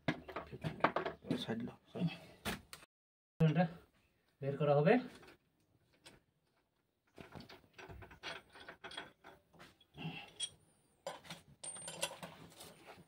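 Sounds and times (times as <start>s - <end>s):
metal tools clinking and scraping: 7.2s - 12.8s.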